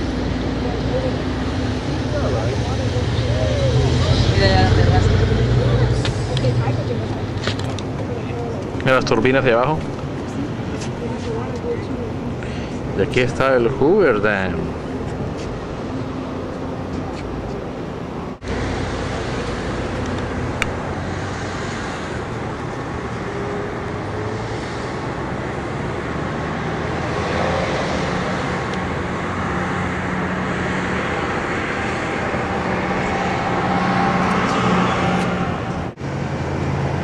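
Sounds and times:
road traffic: 0.0s - 37.0s.

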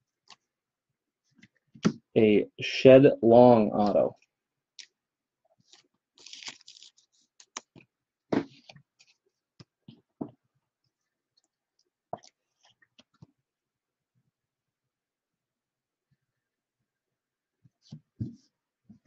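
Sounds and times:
plastic and card rustling: 5.6s - 9.2s.

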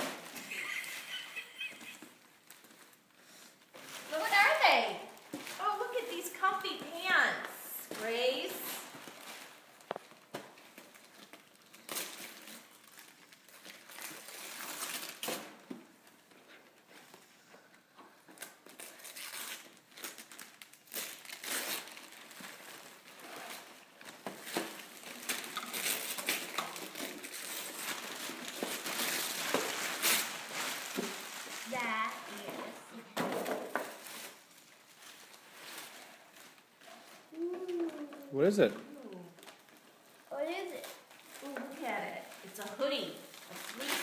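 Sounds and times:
tissue paper crinkling: 3.8s - 7.2s, 7.8s - 15.3s, 18.4s - 33.1s, 33.8s - 37.9s, 38.9s - 44.0s
wrapping paper tearing: 8.0s - 15.6s, 18.4s - 32.9s, 33.9s - 44.0s.

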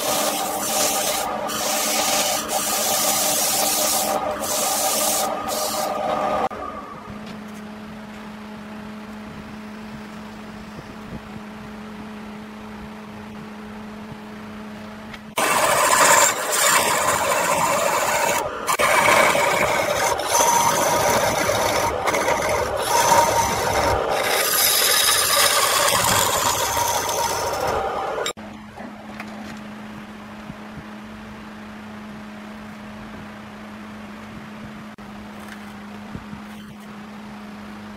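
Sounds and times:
chisel scraping spinning wood: 0.0s - 6.5s, 15.4s - 28.4s
lathe motor humming: 0.0s - 6.8s, 15.4s - 28.4s.

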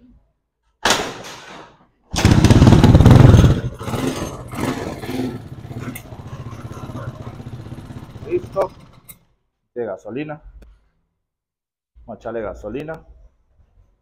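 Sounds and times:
motorcycle engine running: 2.2s - 9.2s
motorcycle kick-start: 2.2s - 9.2s.

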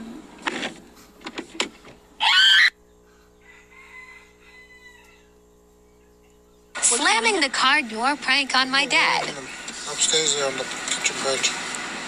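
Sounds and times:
shrill wavering cry: 2.2s - 2.8s.

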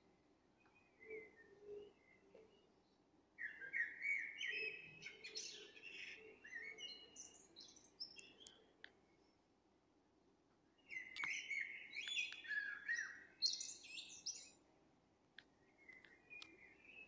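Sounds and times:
birds chirping: 10.8s - 14.6s.

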